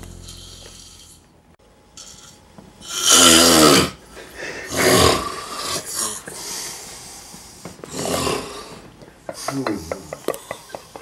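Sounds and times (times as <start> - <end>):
man snoring: 2.8 - 4.0, 4.6 - 6.3, 7.9 - 8.8.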